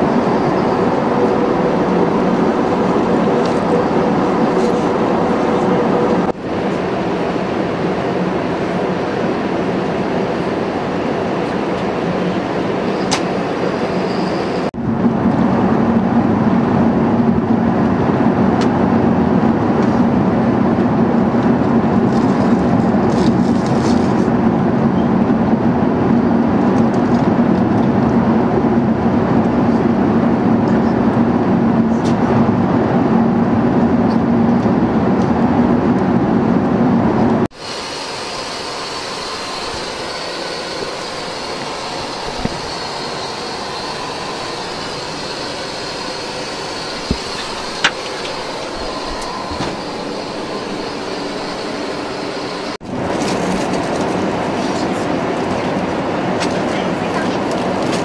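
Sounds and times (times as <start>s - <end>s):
airflow rush: 0.0s - 13.8s, 30.1s - 58.0s
jet engine drone: 0.0s - 58.0s.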